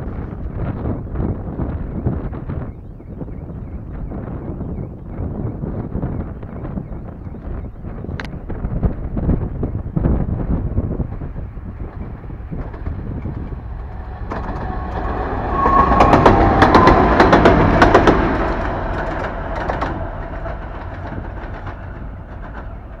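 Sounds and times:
diesel locomotive droning: 0.0s - 23.0s
wheels clattering over rail joints: 10.8s - 23.0s.

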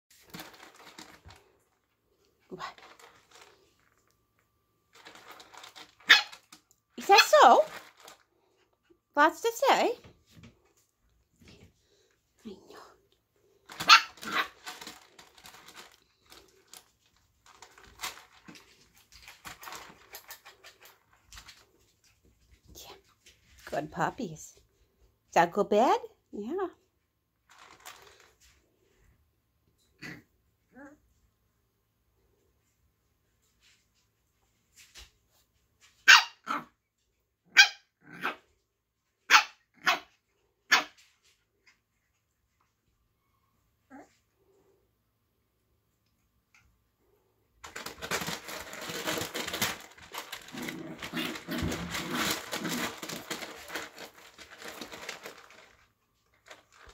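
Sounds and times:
puppies rustling and scrambling: 0.1s - 9.0s, 13.4s - 23.8s, 27.4s - 29.0s, 47.6s - 56.9s
puppy barking: 6.0s - 6.4s, 13.8s - 14.6s, 36.0s - 36.7s, 37.5s - 38.4s, 39.3s - 40.1s, 40.7s - 41.0s.

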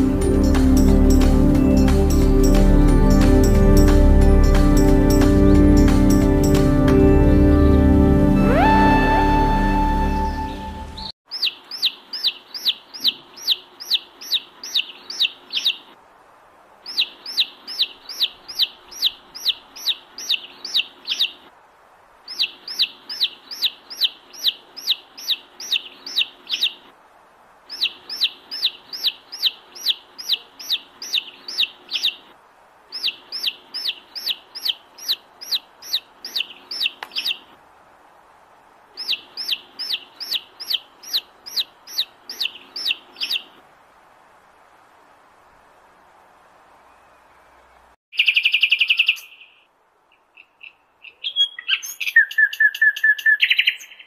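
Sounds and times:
baby chick peeping: 11.3s - 15.9s, 16.9s - 21.4s, 22.3s - 26.8s, 27.7s - 32.2s, 32.9s - 37.4s, 39.0s - 43.5s.

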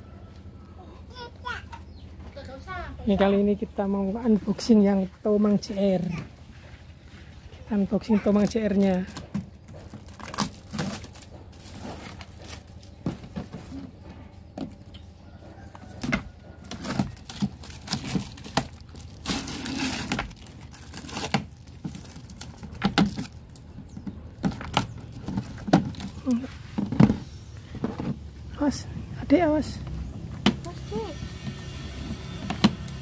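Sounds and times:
rustling of cardboard lid: 8.3s - 14.8s.

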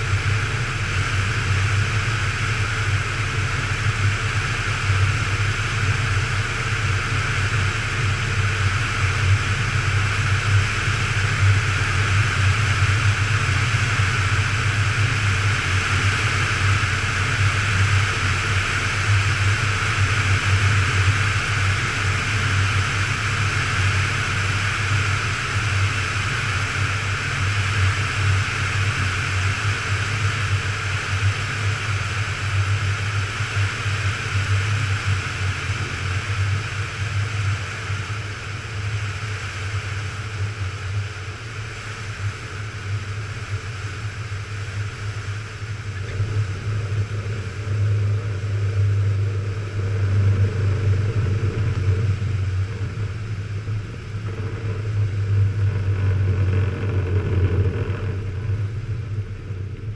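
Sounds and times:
aircraft engine drone: 0.0s - 59.9s.

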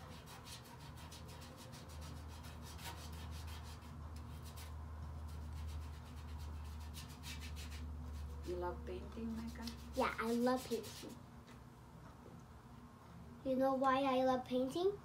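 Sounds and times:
paintbrush scrubbing on paper: 0.0s - 11.2s.

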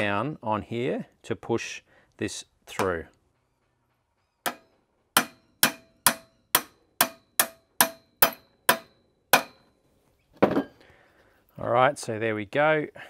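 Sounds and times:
hammer striking metal socket: 4.4s - 9.7s.

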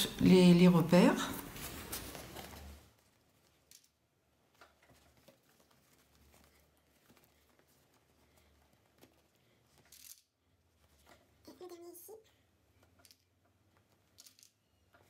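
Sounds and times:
fabric rustling: 1.0s - 9.9s.

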